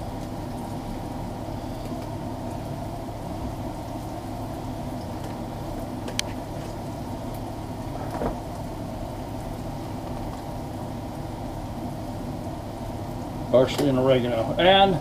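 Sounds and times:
stockpot cooking rumble: 0.0 - 15.0.

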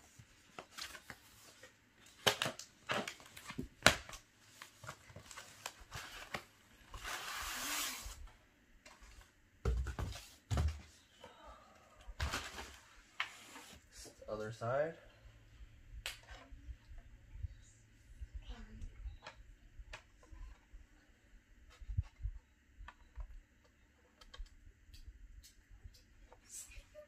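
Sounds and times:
wrap sliding rasp: 7.1 - 8.2.

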